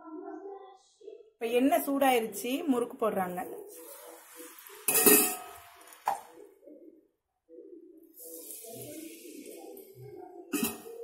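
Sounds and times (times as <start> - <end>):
oil sizzling: 3.0 - 6.4, 8.2 - 11.0
metal ladle clanking on pan: 4.9 - 6.2, 10.5 - 11.0.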